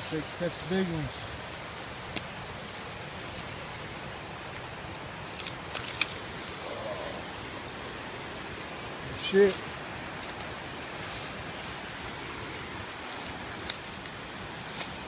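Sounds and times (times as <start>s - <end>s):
whitewater rushing: 0.0s - 15.0s
twigs snapping underfoot: 2.0s - 2.4s, 3.9s - 6.6s, 10.1s - 10.6s, 13.0s - 15.0s.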